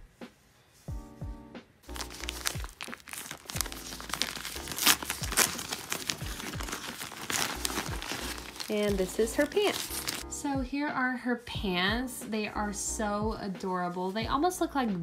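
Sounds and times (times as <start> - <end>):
background music: 0.0 - 15.0
plastic bag crinkling: 1.9 - 10.2.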